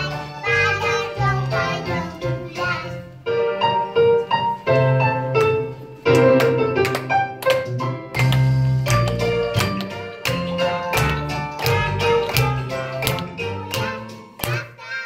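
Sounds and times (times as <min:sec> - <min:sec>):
young children singing: 0:00.0 - 0:03.4, 0:10.5 - 0:15.0
children's song backing track: 0:00.0 - 0:15.0.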